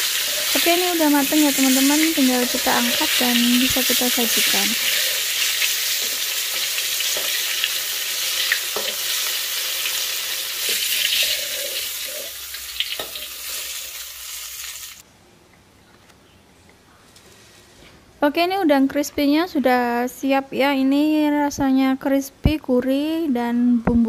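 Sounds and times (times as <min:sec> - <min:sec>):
shrimp sizzling in oil: 0:00.0 - 0:15.0.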